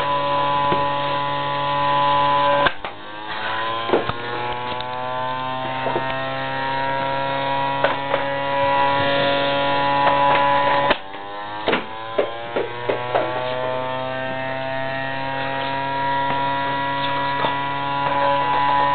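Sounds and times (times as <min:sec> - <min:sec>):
electric motor whining: 0:00.0 - 0:18.9
sharp knocks: 0:10.0 - 0:13.5.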